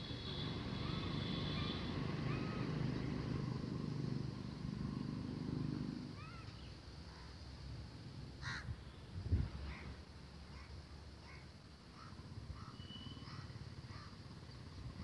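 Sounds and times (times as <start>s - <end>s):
low rumble of passing traffic: 0.0s - 15.0s
harsh bird call: 0.7s - 3.3s
rising bird chirps: 12.6s - 14.1s.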